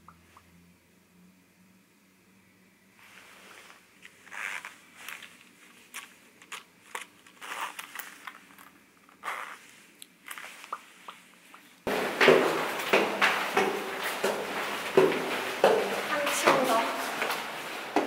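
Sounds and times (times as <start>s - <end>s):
steady background noise: 0.0s - 18.0s
leather bag rustling: 3.1s - 10.8s
zipper pulled shut: 3.6s - 5.4s, 6.9s - 8.4s, 9.2s - 10.7s.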